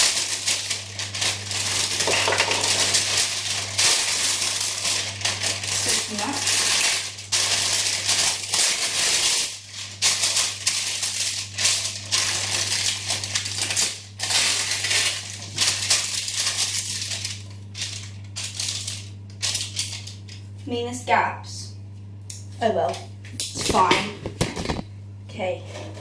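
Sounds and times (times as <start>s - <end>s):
baking paper crinkling: 0.0s - 20.6s.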